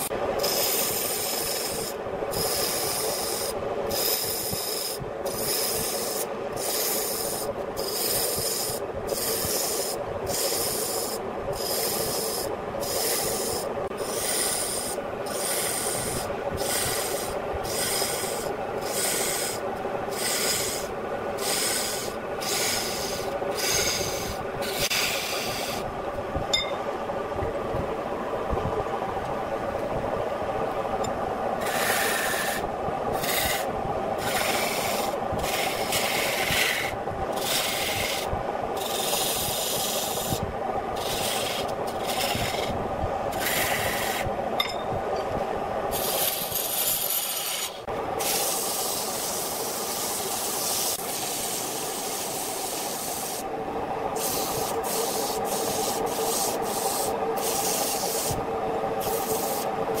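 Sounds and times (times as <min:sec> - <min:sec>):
tool scraping spinning wood: 0:00.0 - 0:25.9, 0:31.6 - 0:40.4, 0:41.0 - 0:44.4, 0:45.9 - 0:53.4
wood lathe humming: 0:41.0 - 0:42.7.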